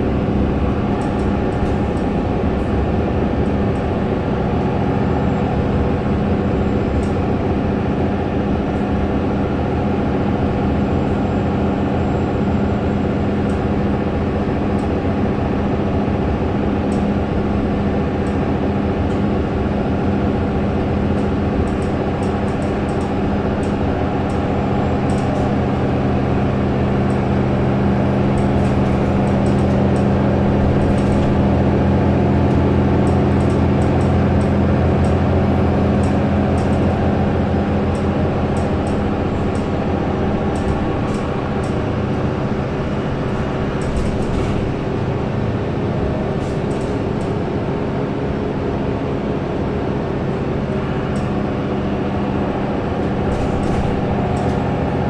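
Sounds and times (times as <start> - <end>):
bus engine drone: 0.0 - 55.0.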